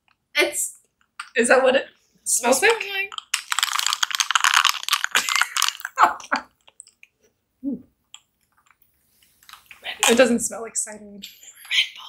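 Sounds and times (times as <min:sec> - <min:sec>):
fizzy drink crackling over ice: 0:03.1 - 0:06.4.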